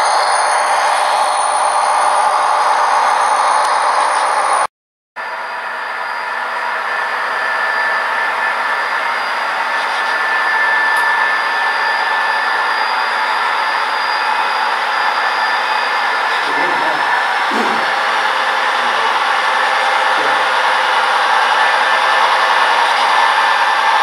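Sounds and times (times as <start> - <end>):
model train whirring: 5.3 - 24.0.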